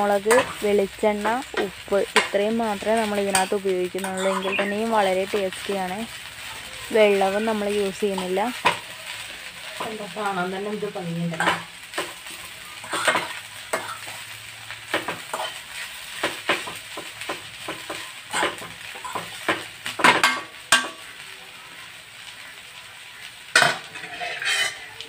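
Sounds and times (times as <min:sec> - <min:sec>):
light sizzle: 0:00.0 - 0:25.0
spoon scraping and tapping pan: 0:01.3 - 0:02.4, 0:03.2 - 0:04.8, 0:12.8 - 0:14.1, 0:14.9 - 0:15.6, 0:16.2 - 0:21.0, 0:23.6 - 0:24.9.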